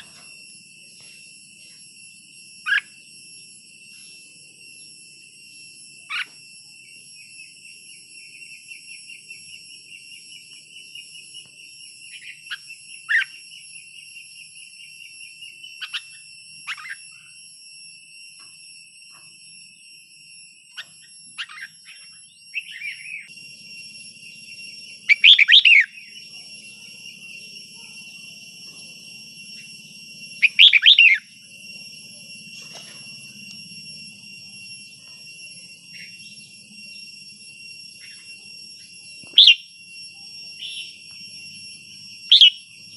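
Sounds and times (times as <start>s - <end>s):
steady high-pitched whine: 0.0s - 42.9s
bird chirping and warbling: 20.8s - 23.3s, 25.1s - 27.3s, 30.4s - 31.3s, 39.4s - 39.7s, 40.6s - 41.0s, 42.3s - 42.7s.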